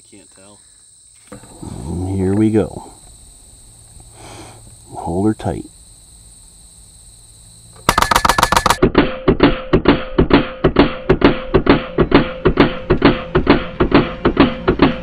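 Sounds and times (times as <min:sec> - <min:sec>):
air rifle firing a burst: 0:07.8 - 0:13.7
music with a steady beat: 0:08.8 - 0:15.0.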